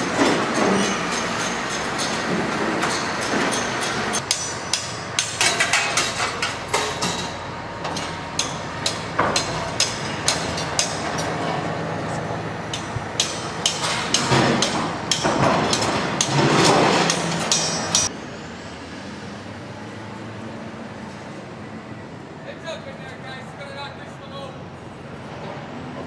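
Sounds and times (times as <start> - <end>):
metal clanks and knocks: 0.0 - 11.8, 12.7 - 18.1
machinery hum: 0.0 - 26.0.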